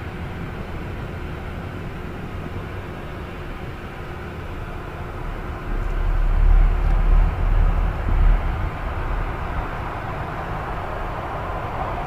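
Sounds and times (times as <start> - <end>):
faint steady hum: 0.0 - 12.0
low rumbling drone: 3.5 - 12.0.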